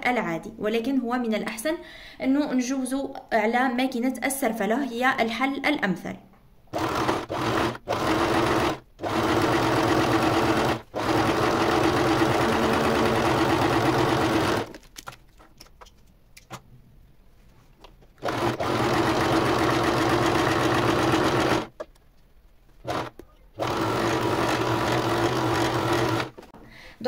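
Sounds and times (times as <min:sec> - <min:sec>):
sewing machine stitching: 0:06.7 - 0:14.7, 0:18.2 - 0:21.8, 0:22.8 - 0:26.5.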